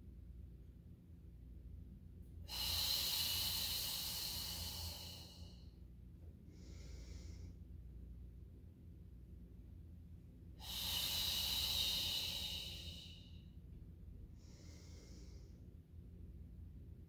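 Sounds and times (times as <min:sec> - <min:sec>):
woman breathing hard: 0:02.4 - 0:05.8, 0:06.4 - 0:07.8, 0:10.6 - 0:13.6, 0:14.2 - 0:15.8.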